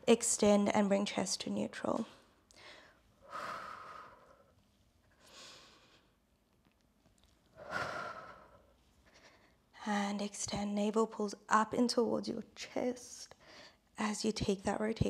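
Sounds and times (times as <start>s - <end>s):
woman breathing heavily: 2.5s - 6.2s, 7.6s - 9.7s.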